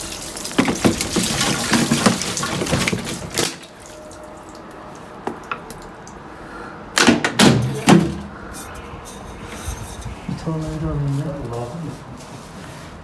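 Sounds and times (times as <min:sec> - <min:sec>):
water splashing through pipe: 0:00.0 - 0:06.4.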